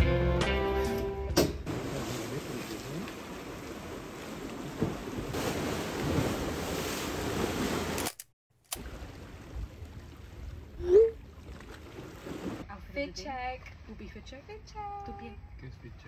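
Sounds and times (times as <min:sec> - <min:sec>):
sea waves washing against quay: 0:01.7 - 0:08.1.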